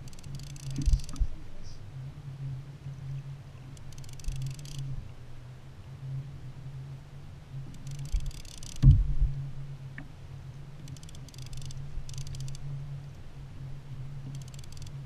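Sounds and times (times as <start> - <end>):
fishing reel clicking: 0.0 - 1.3, 3.7 - 4.9, 7.7 - 8.8, 10.8 - 12.7, 14.3 - 15.0
loud thump: 8.8 - 9.2.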